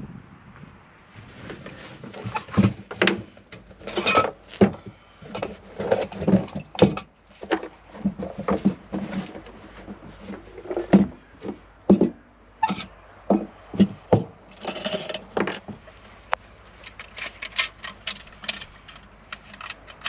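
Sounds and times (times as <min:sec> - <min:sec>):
metal and leather handling noises: 0:01.2 - 0:20.0.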